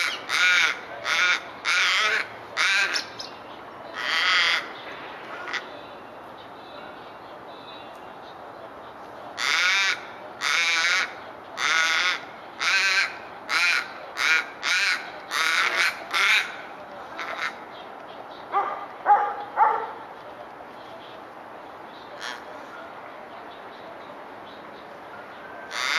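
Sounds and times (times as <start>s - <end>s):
raven calling: 0.0s - 5.9s, 9.4s - 17.7s, 22.0s - 22.7s, 25.4s - 25.9s.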